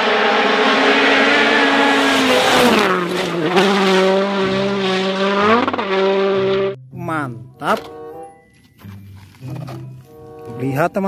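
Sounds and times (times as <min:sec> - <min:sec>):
race car engine at high revs: 0:00.0 - 0:06.8.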